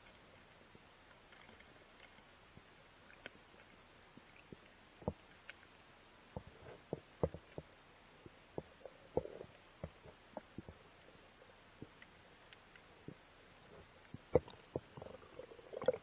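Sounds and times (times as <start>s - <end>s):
muffled underwater knocks and clicks: 6.3s - 10.8s, 13.8s - 16.0s.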